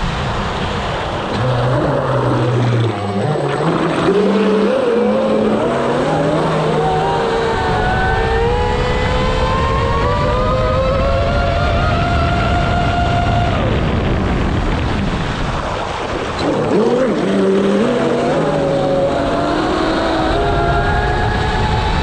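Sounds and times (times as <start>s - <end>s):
water rushing: 0.0s - 22.0s
electric motor whine: 1.3s - 13.9s.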